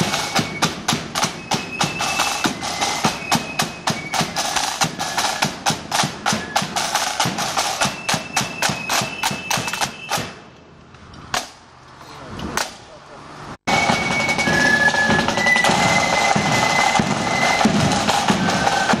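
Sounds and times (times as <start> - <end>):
side drums marching beat: 0.0 - 10.5, 13.7 - 19.0
long high notes: 13.7 - 19.0.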